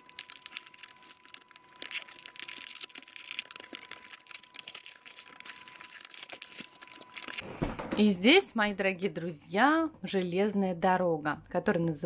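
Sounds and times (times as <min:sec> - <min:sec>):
plastic wrapping crinkling and tearing: 0:00.0 - 0:07.4.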